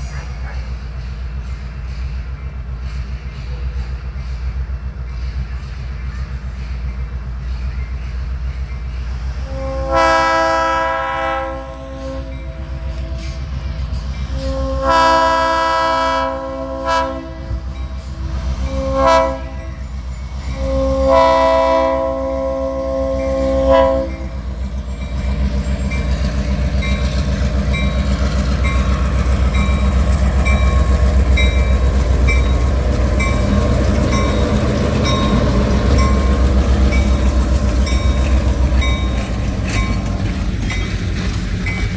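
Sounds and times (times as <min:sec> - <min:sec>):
locomotive engine rumbling: 0:00.0 - 0:41.9
train rolling past: 0:00.0 - 0:41.9
locomotive horn chord: 0:09.4 - 0:13.6, 0:14.3 - 0:19.8, 0:20.5 - 0:24.4.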